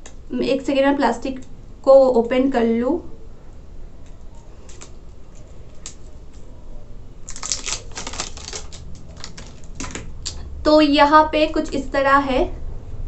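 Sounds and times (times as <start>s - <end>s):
plastic wrap crinkling: 7.2s - 10.4s
scissors snipping plastic wrap: 7.3s - 10.1s.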